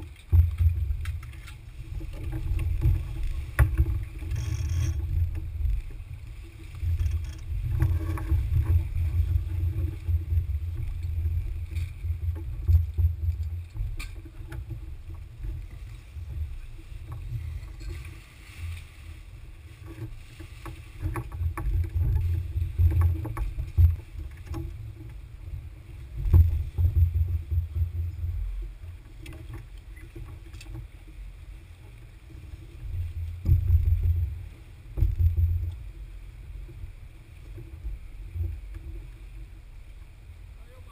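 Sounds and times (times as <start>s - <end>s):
wind and water rumble: 0.0s - 40.9s
knocks and clicks of gear: 10.8s - 14.8s, 26.2s - 30.9s, 35.0s - 35.8s.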